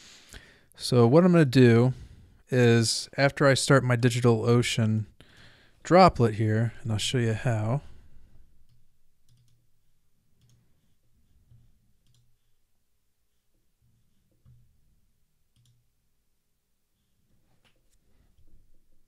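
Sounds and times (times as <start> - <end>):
computer mouse clicks: 8.6 - 9.6, 10.4 - 10.6, 11.5 - 12.3, 15.5 - 15.8.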